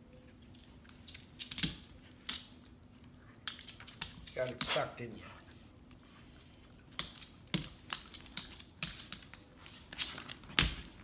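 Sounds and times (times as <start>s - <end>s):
dog claws tapping hard floor: 1.1s - 2.6s, 6.9s - 11.0s.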